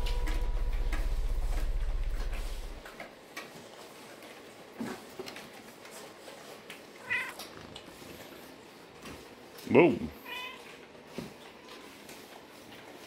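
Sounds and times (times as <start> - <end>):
puppies scuffling and knocking: 0.0 - 6.8.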